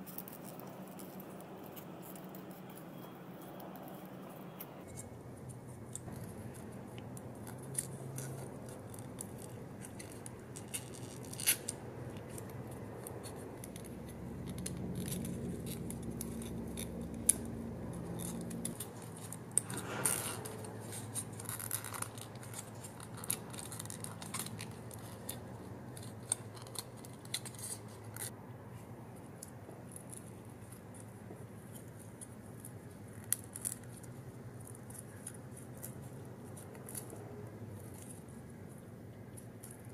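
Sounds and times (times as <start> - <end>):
cardstock clicking and crackling: 0.0 - 28.4.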